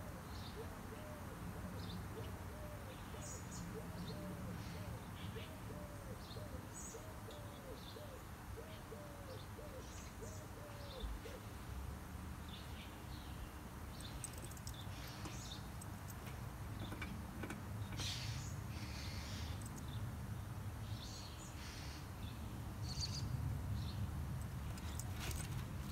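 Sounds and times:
rustling: 24.4 - 25.9.

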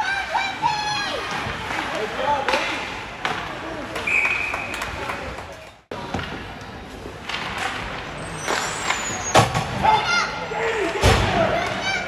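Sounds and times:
arena noise: 0.0 - 12.0
hockey sticks and skates knocking: 1.3 - 9.6
referee's whistle: 4.0 - 4.8.

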